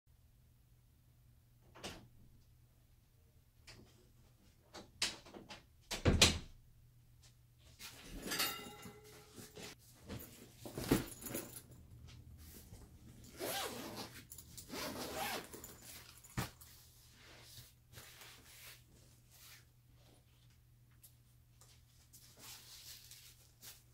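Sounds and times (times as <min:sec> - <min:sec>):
rustling and handling noise: 0:07.2 - 0:23.9
zipper pulled open: 0:13.3 - 0:16.5.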